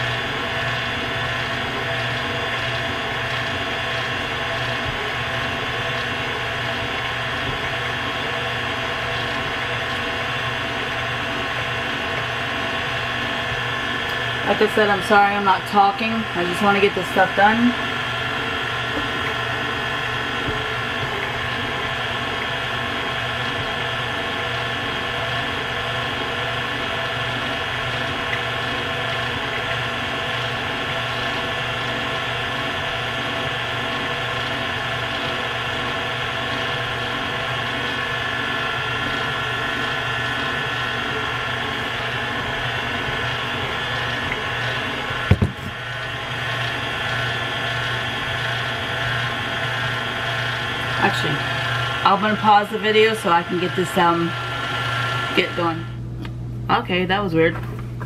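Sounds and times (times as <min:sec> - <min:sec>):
electric mixer motor running: 0:00.0 - 0:56.1
knock: 0:45.3 - 0:45.7.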